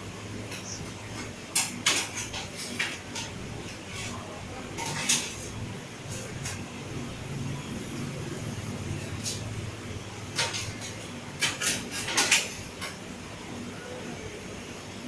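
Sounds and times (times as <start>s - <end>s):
dishes and utensils clinking: 0.5s - 5.5s, 10.3s - 13.0s.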